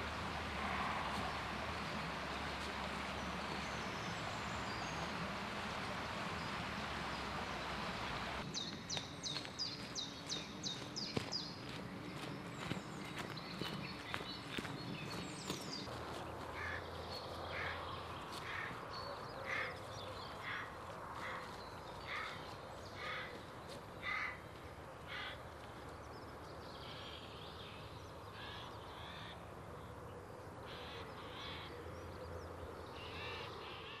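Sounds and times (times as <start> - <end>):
faint low outdoor hum: 0.0 - 34.0
high bird calls: 1.0 - 25.5
crow cawing: 16.5 - 16.9, 17.5 - 17.8, 19.4 - 19.8, 20.4 - 21.5, 22.1 - 22.4, 23.0 - 23.4, 24.0 - 24.4, 25.1 - 25.4.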